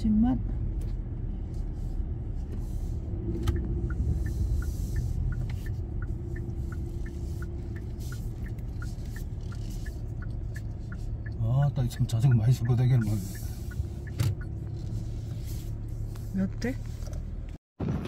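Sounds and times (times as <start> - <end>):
turn signal ticking: 0.0 - 17.6
car cabin rumble: 0.0 - 18.0.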